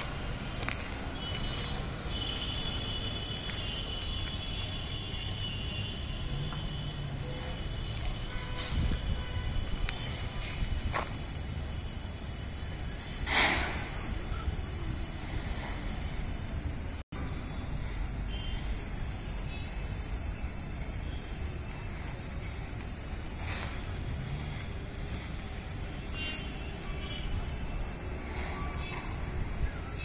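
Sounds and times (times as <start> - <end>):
crickets trilling: 0.0 - 30.0.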